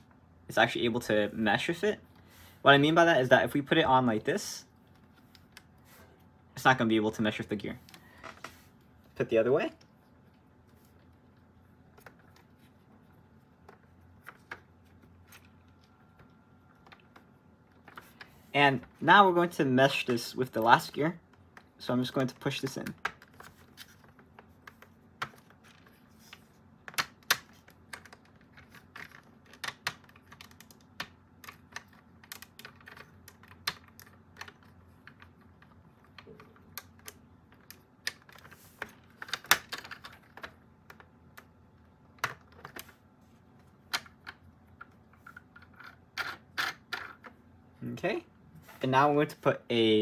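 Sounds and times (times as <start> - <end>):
plastic parts clicking and tapping: 26.8 - 43.0.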